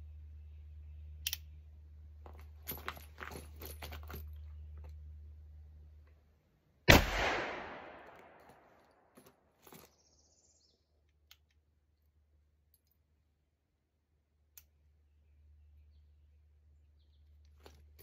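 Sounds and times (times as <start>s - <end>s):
revolver gunshot: 6.9s - 8.4s.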